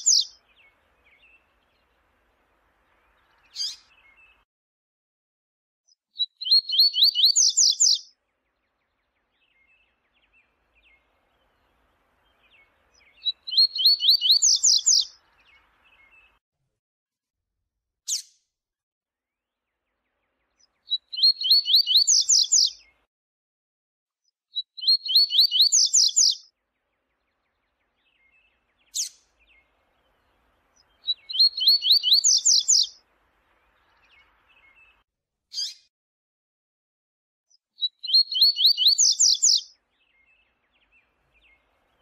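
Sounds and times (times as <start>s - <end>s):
bird singing: 0.0s - 4.4s, 6.2s - 16.4s, 20.5s - 23.1s, 24.5s - 35.0s, 37.8s - 42.0s.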